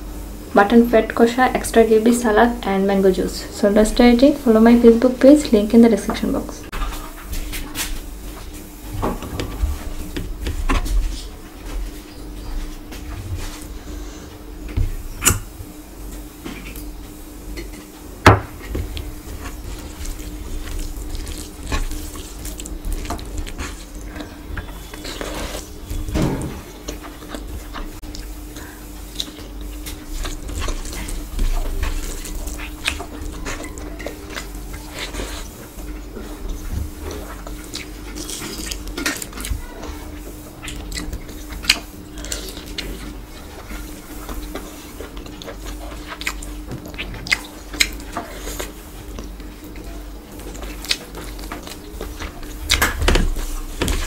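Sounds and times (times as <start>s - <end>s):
biting and chewing: 18.5s - 54.0s
fingers mixing rice: 18.8s - 26.1s, 26.7s - 54.0s.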